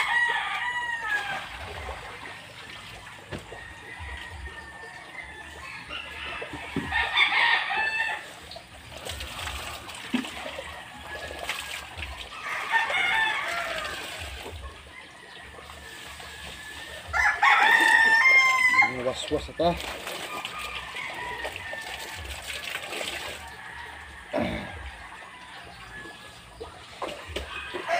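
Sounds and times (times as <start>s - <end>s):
rooster crowing: 0.0s - 1.6s, 3.4s - 8.4s, 12.4s - 19.0s, 20.5s - 22.3s, 23.4s - 26.4s, 27.4s - 27.9s
water pouring and splashing: 0.0s - 27.9s.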